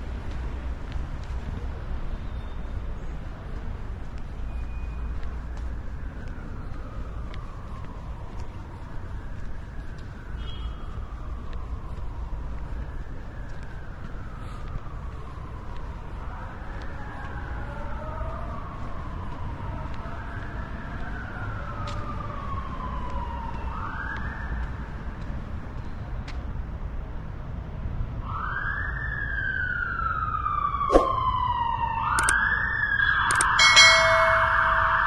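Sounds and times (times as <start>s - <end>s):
city traffic rumble: 0.0s - 35.0s
emergency vehicle siren wailing: 5.4s - 25.2s, 28.2s - 35.0s
sharp clicks: 32.2s - 32.4s, 33.3s - 33.6s.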